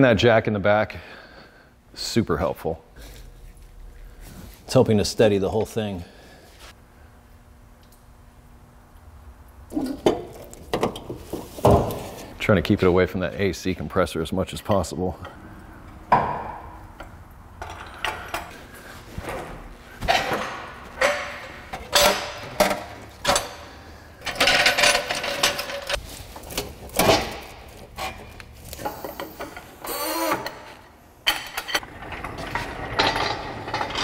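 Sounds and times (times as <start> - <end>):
metallic clanks and scrapes: 31.3 - 34.0.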